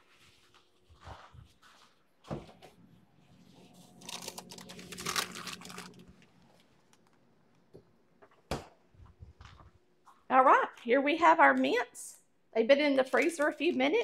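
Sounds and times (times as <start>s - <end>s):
low hum: 2.6s - 8.3s.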